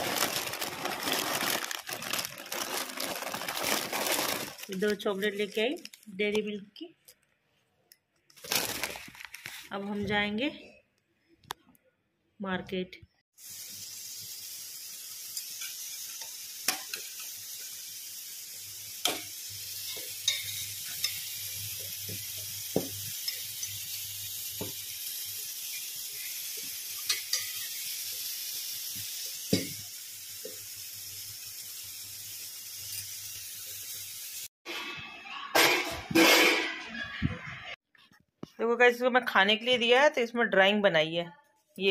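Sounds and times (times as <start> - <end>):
food sizzling in pans: 0.0 - 5.7, 13.4 - 34.8.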